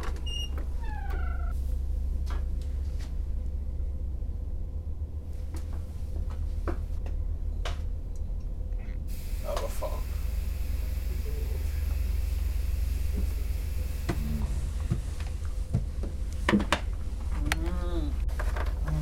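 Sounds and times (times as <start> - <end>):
low rumble: 0.2 - 19.0
faint steady tone: 8.2 - 14.8
hiss: 9.1 - 15.4.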